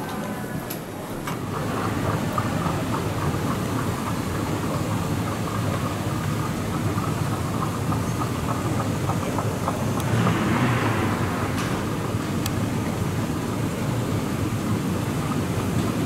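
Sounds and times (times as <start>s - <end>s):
moving walkway rumble: 0.0s - 16.0s
terminal concourse noise: 0.0s - 16.0s.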